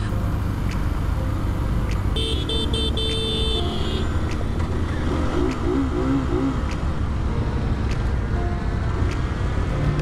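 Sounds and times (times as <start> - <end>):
engines and traffic rumble: 0.0 - 10.0
vehicle horn honking: 2.2 - 4.1.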